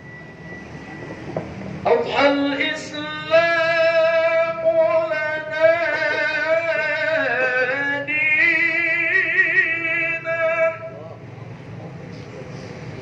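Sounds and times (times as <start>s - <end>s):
man chanting into a microphone: 1.8s - 11.0s.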